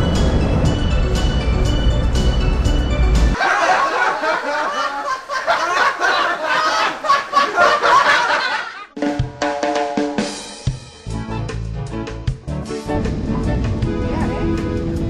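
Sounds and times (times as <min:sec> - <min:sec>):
music: 0:00.0 - 0:03.4, 0:08.9 - 0:15.0
snickering laughter: 0:03.4 - 0:08.9.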